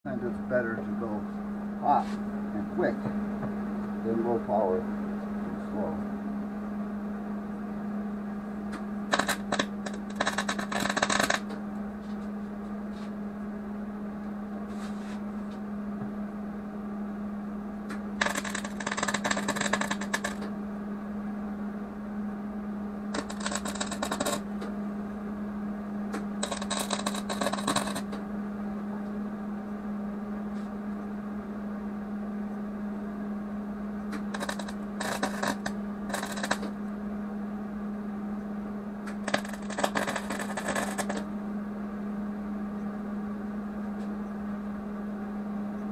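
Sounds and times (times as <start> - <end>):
steady low hum: 0.0 - 45.9
welding arc crackling: 9.1 - 11.6, 18.2 - 20.5, 23.1 - 24.4, 26.4 - 28.2, 34.2 - 36.7, 39.1 - 41.2.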